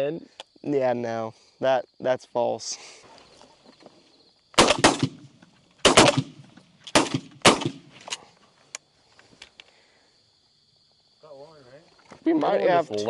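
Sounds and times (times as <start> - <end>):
shotgun shots: 4.6 - 8.0.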